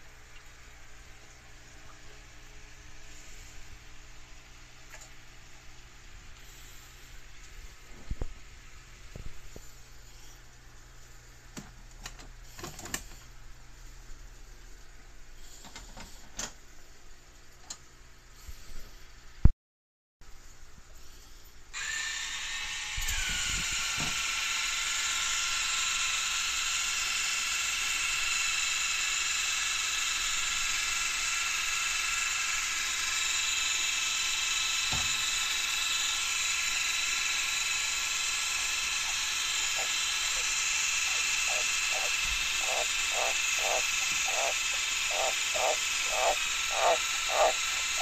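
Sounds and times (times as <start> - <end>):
pump whine: 0.0 - 10.6, 21.7 - 48.0
misting system hissing: 23.0 - 48.0
tree frog croaking: 39.0 - 48.0.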